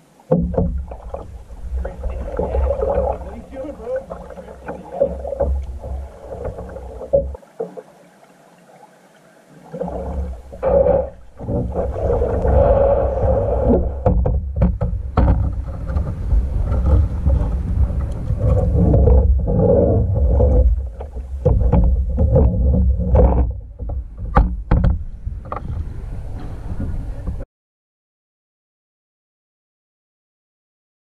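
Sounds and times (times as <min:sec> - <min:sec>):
water rumbling against kayak hull: 0:00.0 - 0:27.4
paddle knocks and splashes: 0:00.2 - 0:08.0, 0:09.5 - 0:27.4.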